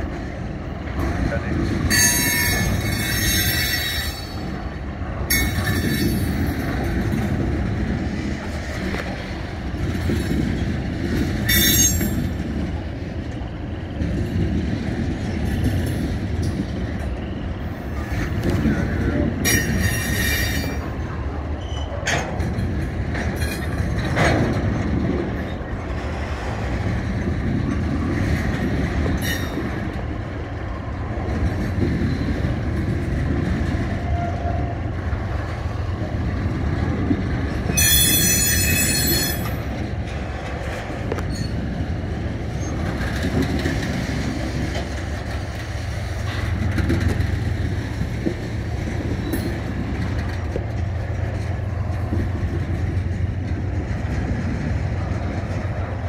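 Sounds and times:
train wheels rumbling on rail: 0:00.0 - 0:56.0
high-pitched squeal from train cars: 0:01.8 - 0:04.6, 0:05.3 - 0:06.5, 0:11.4 - 0:12.4, 0:16.8 - 0:21.0, 0:21.6 - 0:22.1, 0:29.2 - 0:29.8, 0:37.6 - 0:39.7, 0:41.1 - 0:41.7.

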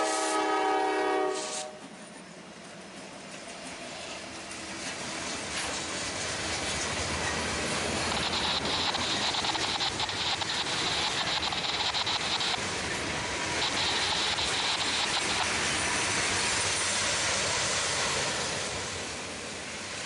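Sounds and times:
train wheels on rails: 0:00.0 - 0:20.0
high hiss: 0:01.2 - 0:01.8, 0:05.4 - 0:20.0.

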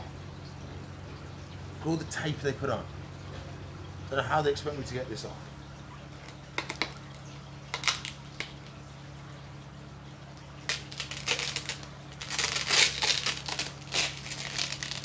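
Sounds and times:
sticky tape crackling and ripping: 0:06.2 - 0:08.8, 0:10.7 - 0:15.0.

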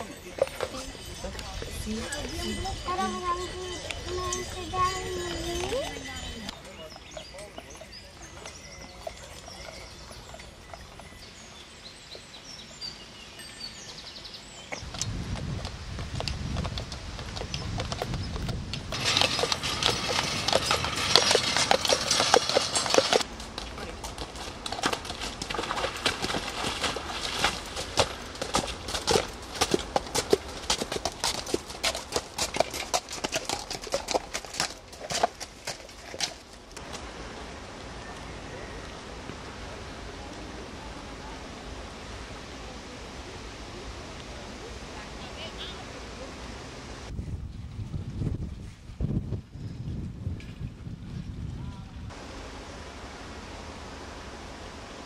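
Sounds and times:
hooves clip-clopping on pavement: 0:00.0 - 0:12.3, 0:14.7 - 0:41.2
wind on microphone: 0:14.8 - 0:23.2, 0:46.9 - 0:52.2.

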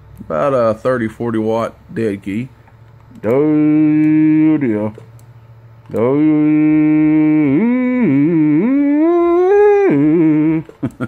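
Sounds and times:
man's long held wordless tone: 0:03.1 - 0:05.0, 0:05.9 - 0:10.8.

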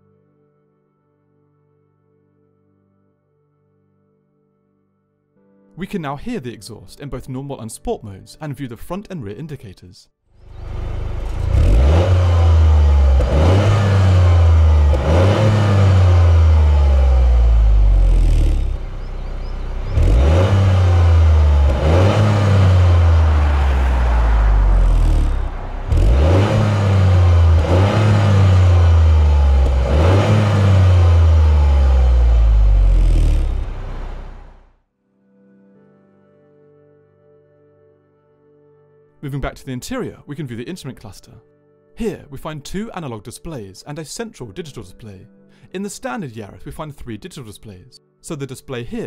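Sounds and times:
car engine revving: 0:10.4 - 0:34.7.

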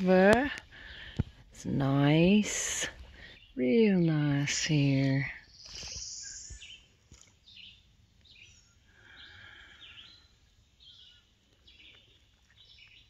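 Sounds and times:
bird chirps: 0:04.9 - 0:13.0.

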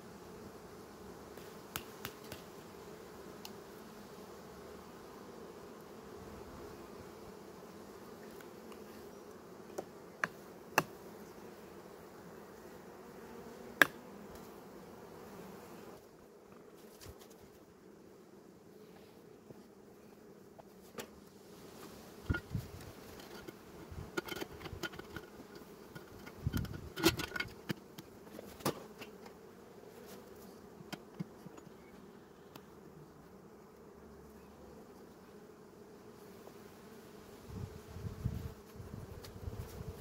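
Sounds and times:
honeybees humming: 0:00.0 - 0:16.9.

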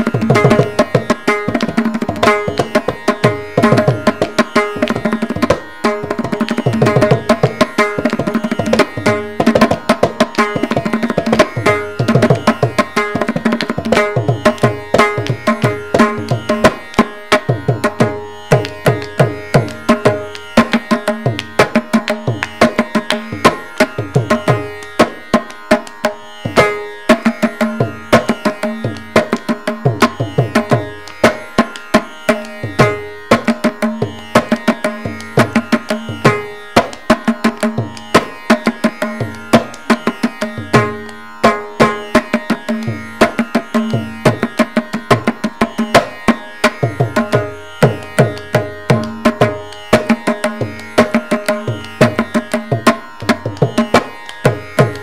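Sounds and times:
fast hand drum solo: 0:00.1 - 0:16.8.

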